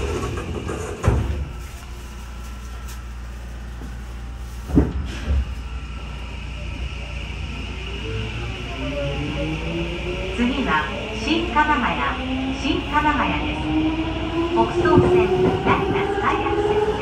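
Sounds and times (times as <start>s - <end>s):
train doors thudding shut: 0.0s - 1.6s, 4.7s - 5.6s
train low hum: 0.0s - 17.0s.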